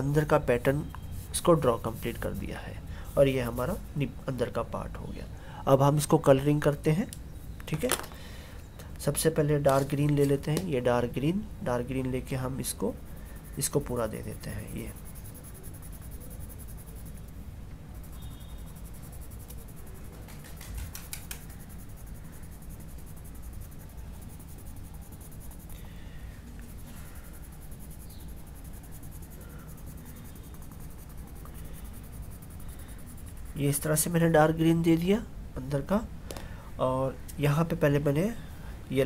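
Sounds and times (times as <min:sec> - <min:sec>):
pencil scratching on paper: 0:00.0 - 0:04.1, 0:12.0 - 0:20.4, 0:21.3 - 0:25.8, 0:26.6 - 0:34.9
faint steady hum: 0:00.0 - 0:39.0.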